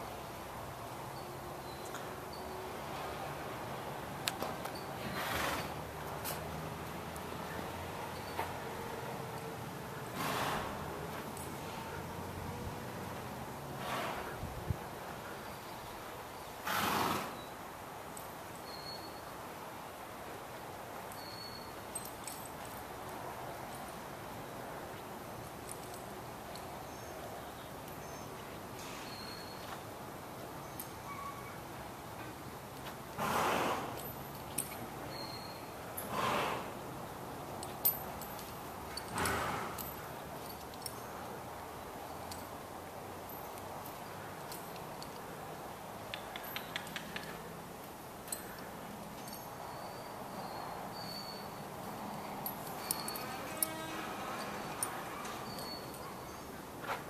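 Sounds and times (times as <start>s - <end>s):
background hiss: 0.0s - 57.0s
horse hooves tapping on footing: 4.2s - 7.4s, 20.3s - 36.8s, 37.5s - 41.4s, 46.0s - 49.8s
faint bird chirps: 18.6s - 19.3s, 21.2s - 21.8s, 29.0s - 29.8s, 35.1s - 35.8s, 49.3s - 51.6s, 55.3s - 56.6s.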